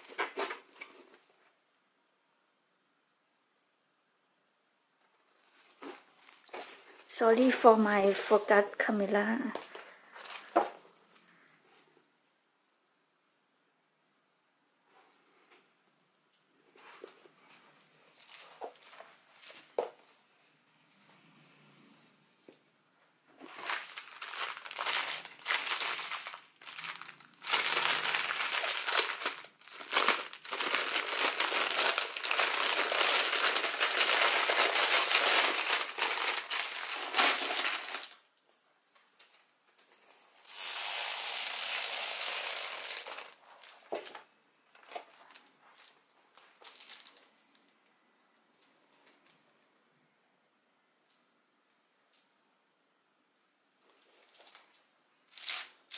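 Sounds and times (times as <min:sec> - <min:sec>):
plastic bag crinkling: 0:10.1 - 0:11.2, 0:18.1 - 0:19.8, 0:23.4 - 0:38.3, 0:40.4 - 0:47.7, 0:53.9 - 0:55.9.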